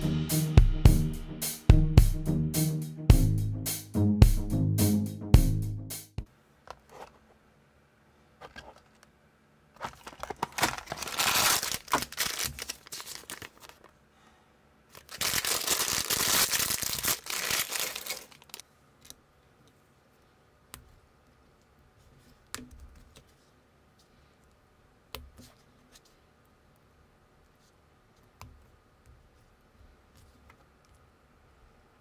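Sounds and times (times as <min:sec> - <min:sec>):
packaging tearing: 0:09.8 - 0:13.9, 0:14.9 - 0:18.6
plastic bag crinkling: 0:09.8 - 0:14.0, 0:14.9 - 0:18.6.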